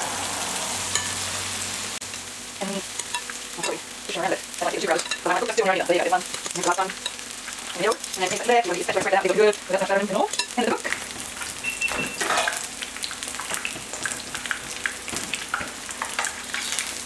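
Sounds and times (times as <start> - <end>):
batter sizzling in hot oil: 0.0 - 17.0
metal spoons scraping: 3.0 - 3.8, 4.7 - 9.5, 10.1 - 10.6, 11.9 - 12.7.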